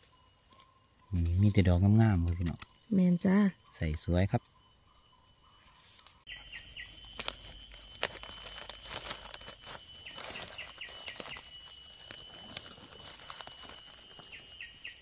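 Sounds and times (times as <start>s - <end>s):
bird chirping: 0.0s - 15.0s
high insect drone: 0.0s - 15.0s
footsteps in leaf litter: 6.3s - 15.0s.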